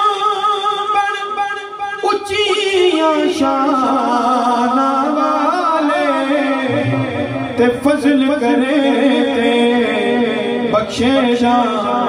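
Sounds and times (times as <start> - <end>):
man singing unaccompanied: 0.0 - 12.0.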